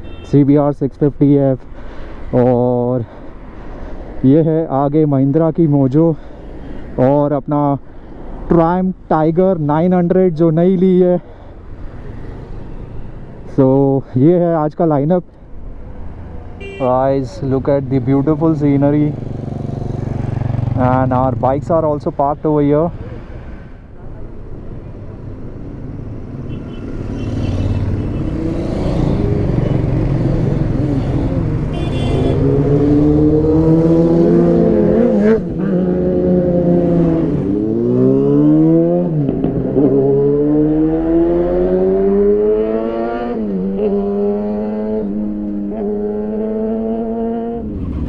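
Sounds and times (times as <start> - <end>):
motorcycle engine revving: 17.8 - 22.0, 25.7 - 48.0.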